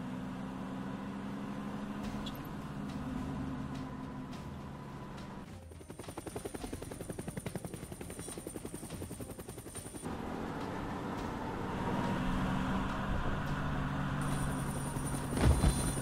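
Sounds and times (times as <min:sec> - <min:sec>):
helicopter rotor chop: 0:02.7 - 0:16.0
turbine whine: 0:09.8 - 0:16.0.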